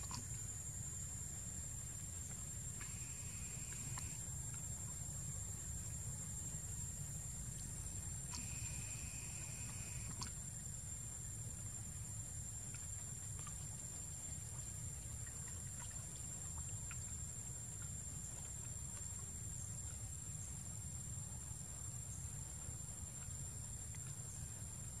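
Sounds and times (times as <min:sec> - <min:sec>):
small water splashes: 0:00.0 - 0:00.8, 0:01.9 - 0:05.2, 0:07.5 - 0:10.5, 0:12.6 - 0:20.1
high-pitched insect drone: 0:02.8 - 0:04.2, 0:08.4 - 0:10.1.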